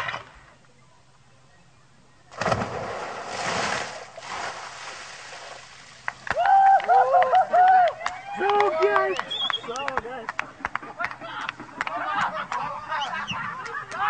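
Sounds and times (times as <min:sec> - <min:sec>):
loud splash into pool: 0:02.3 - 0:06.0
water splashing and sloshing: 0:02.3 - 0:06.3.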